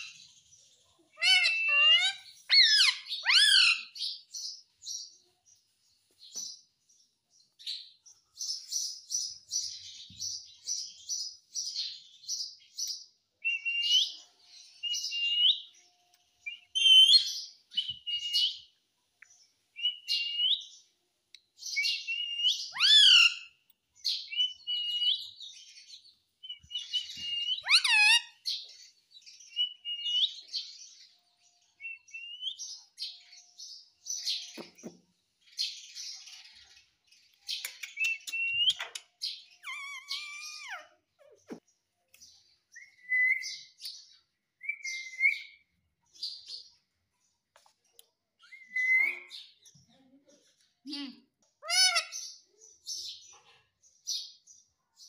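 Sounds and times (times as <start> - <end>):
parakeet chirping: 1.2 - 4.1, 22.0 - 23.5, 26.5 - 28.5, 39.6 - 40.8.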